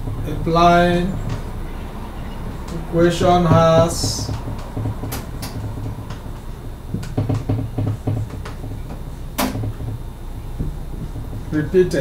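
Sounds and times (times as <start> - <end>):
low room hum: 0.0 - 12.0
sharp knock: 2.8 - 6.2, 6.9 - 12.0.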